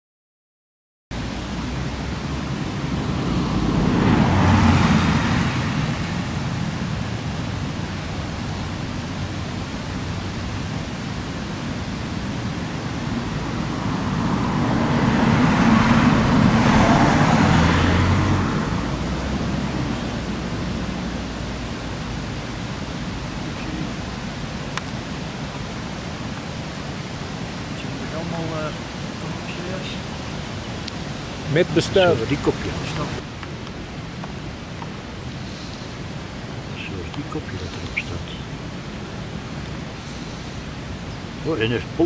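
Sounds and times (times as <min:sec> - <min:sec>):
vehicles passing by: 0:01.1 - 0:42.0
steady hiss: 0:19.1 - 0:42.0.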